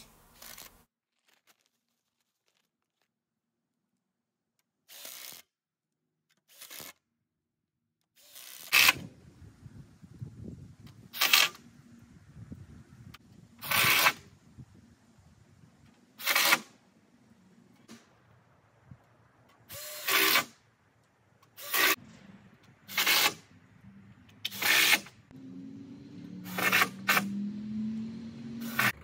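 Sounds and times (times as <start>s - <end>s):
power drill driving screws: 16.2s - 16.7s, 19.7s - 20.5s, 21.5s - 22.0s, 22.9s - 23.4s, 24.4s - 25.1s, 26.4s - 27.4s, 28.6s - 29.0s.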